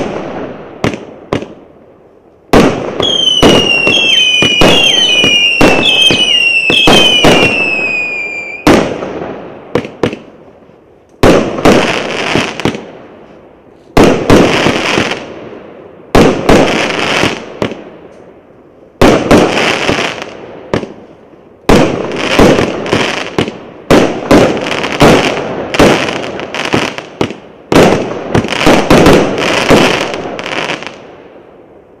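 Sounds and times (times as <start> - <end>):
firework bursts crackling: 2.5 - 10.3, 21.7 - 31.0
firework whistles: 3.0 - 8.7.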